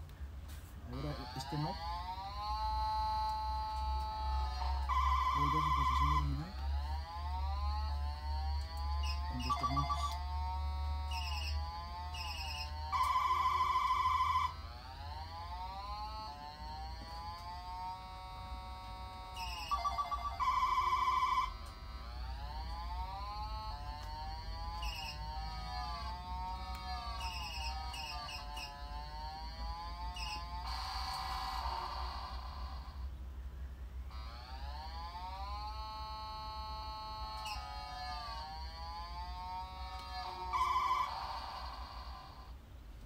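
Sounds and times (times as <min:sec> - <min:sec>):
loud buzzing trill: 0:00.9 - 0:33.1, 0:34.0 - 0:42.6
electronic ringtone-like melody: 0:01.0 - 0:14.7, 0:19.3 - 0:21.7, 0:24.6 - 0:28.7, 0:30.1 - 0:32.9, 0:40.2 - 0:42.5.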